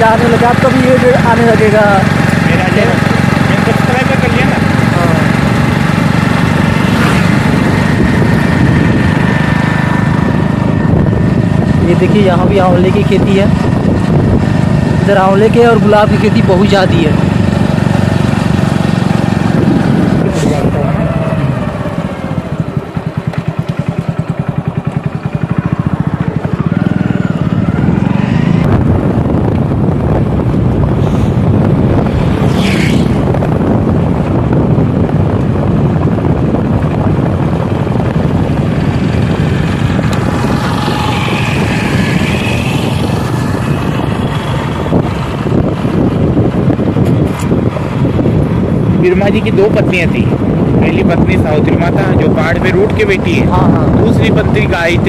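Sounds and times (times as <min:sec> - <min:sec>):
motorcycle engine running: 0:00.0 - 0:55.0
wind buffeting microphone: 0:00.0 - 0:55.0.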